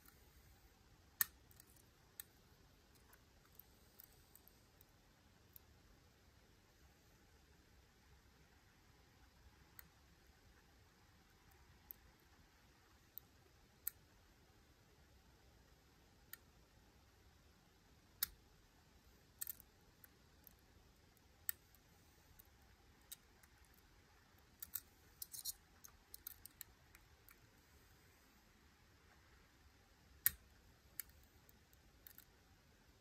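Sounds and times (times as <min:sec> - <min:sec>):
lock pick clicking against pins: 0:19.3 - 0:19.7, 0:24.4 - 0:27.4.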